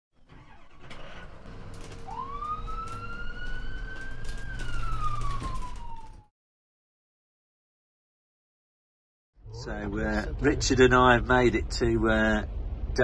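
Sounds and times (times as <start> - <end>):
low vehicle rumble: 0.2 - 6.2, 9.4 - 13.0
emergency siren wailing: 1.5 - 6.3.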